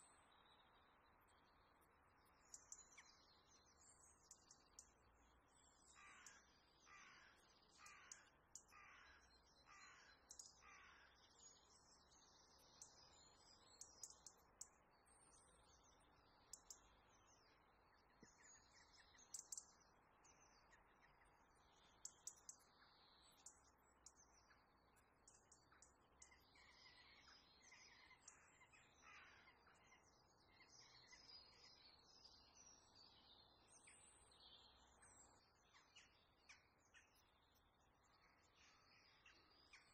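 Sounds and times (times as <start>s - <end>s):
faint crackles and chirps: 0.0s - 39.9s
crow cawing: 6.0s - 11.1s.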